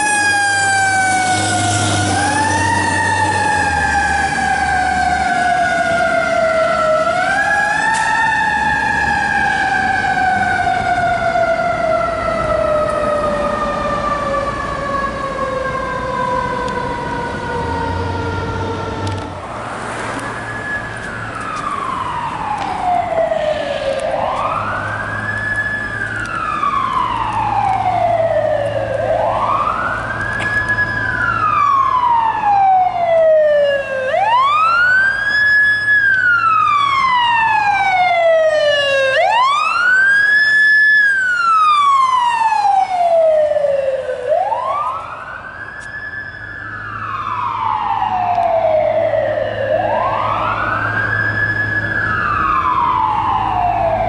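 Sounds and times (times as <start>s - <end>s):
fire engine siren wailing: 0.0s - 54.0s.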